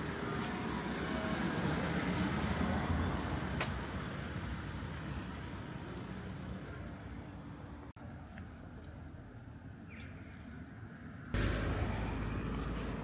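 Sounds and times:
vehicle passing by: 11.3 - 13.0.

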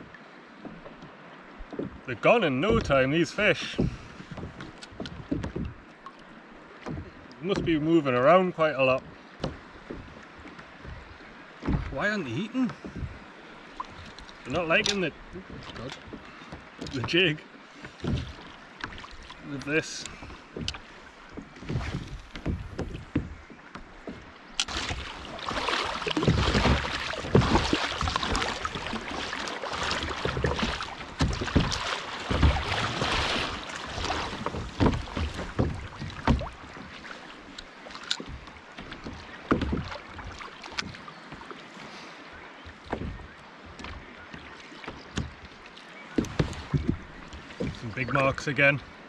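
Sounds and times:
water lapping against kayak hull: 0.0 - 49.0
knocks on kayak: 10.8 - 12.0, 20.6 - 36.9.

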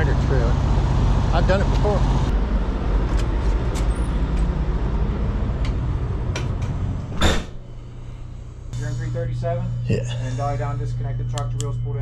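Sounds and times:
diesel truck engines rumbling: 0.0 - 9.2.

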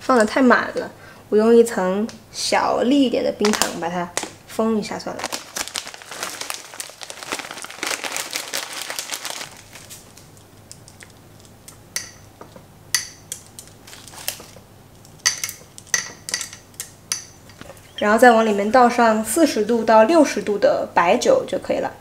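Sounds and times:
bag crinkling: 5.1 - 11.2, 13.7 - 14.6.

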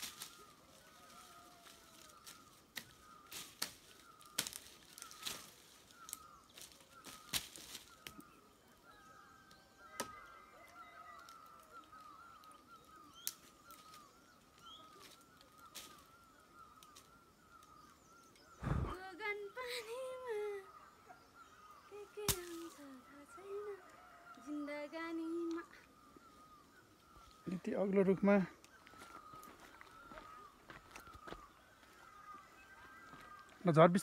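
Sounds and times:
branches snapping under a sickle: 0.0 - 8.3, 9.9 - 10.3, 11.2 - 14.1, 15.0 - 16.1, 22.2 - 22.8
bird chirping: 0.0 - 34.0.

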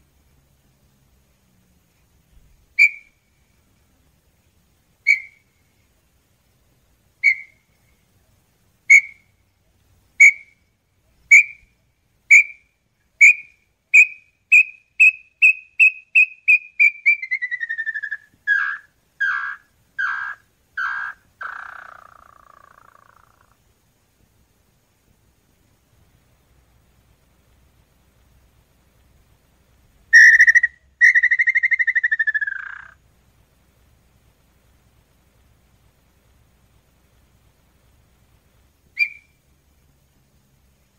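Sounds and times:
bird whistling into a falling trill: 30.2 - 32.6.

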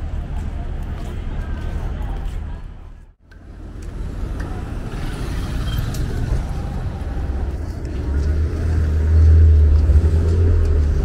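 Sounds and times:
people talking: 0.0 - 3.2
vehicle rumble: 0.0 - 11.0.

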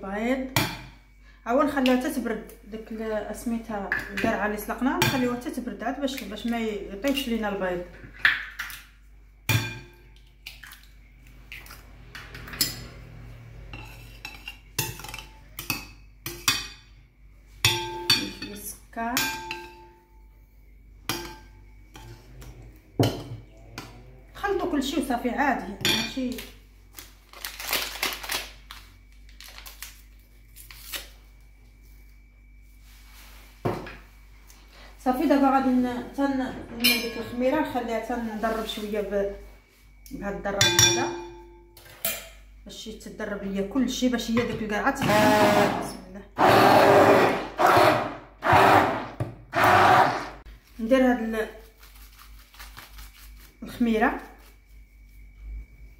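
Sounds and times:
spoon clinking glass bowl: 17.6 - 20.0, 36.8 - 37.5, 40.6 - 42.3
paper sachet rustling: 26.9 - 31.0, 51.6 - 53.6.

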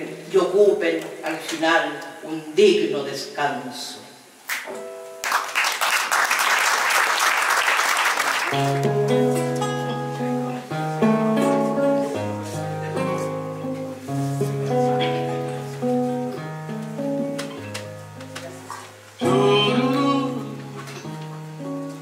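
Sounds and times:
audience applause: 5.2 - 8.9
acoustic guitar picked chords: 8.5 - 22.0.

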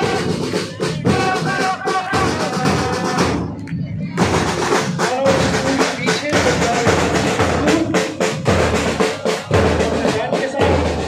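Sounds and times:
snare drum strokes and rolls: 0.0 - 11.0.

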